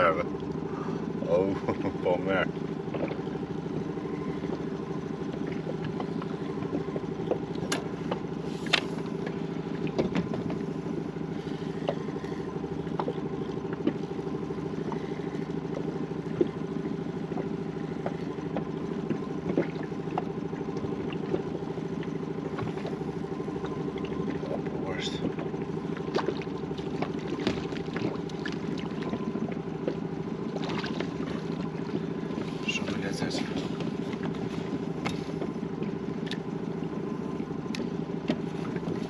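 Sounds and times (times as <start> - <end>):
low engine hum: 0.0 - 39.0
light clicks and knocks: 5.3 - 10.7.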